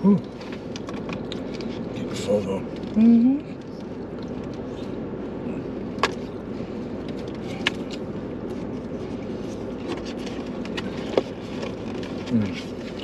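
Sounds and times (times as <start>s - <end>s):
low hum inside car: 0.0s - 13.0s.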